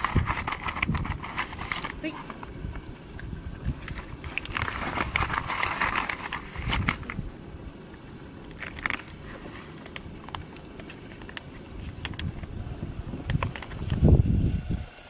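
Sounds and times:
plastic pouch crinkling: 0.0s - 2.5s, 3.1s - 12.5s.

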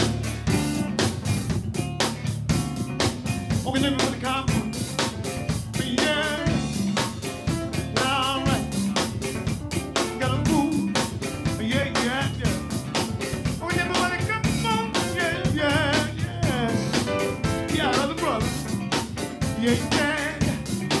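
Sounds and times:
drum kit beat: 0.0s - 21.0s
live band playing groove: 0.0s - 21.0s
person singing: 5.7s - 6.8s, 7.7s - 9.0s, 9.9s - 12.9s, 13.6s - 18.7s, 19.4s - 21.0s.

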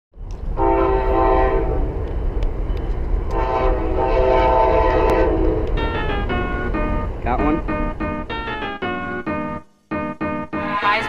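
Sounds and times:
train horn blasts: 0.6s - 2.0s, 3.3s - 5.8s.

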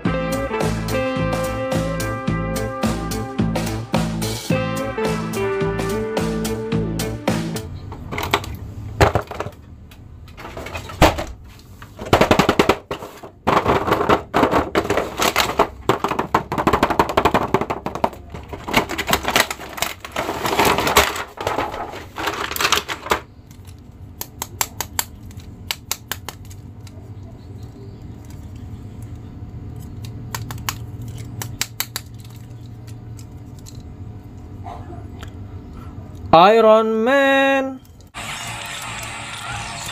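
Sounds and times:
plastic blister tray crinkling: 11.7s - 33.9s.

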